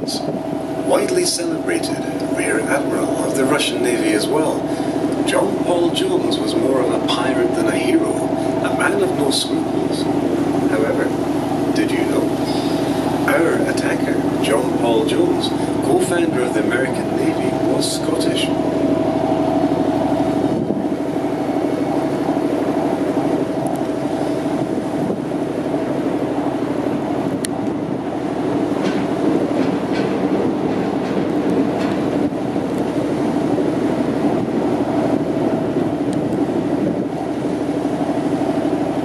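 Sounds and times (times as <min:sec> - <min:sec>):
boat engine droning: 0:00.0 - 0:39.0.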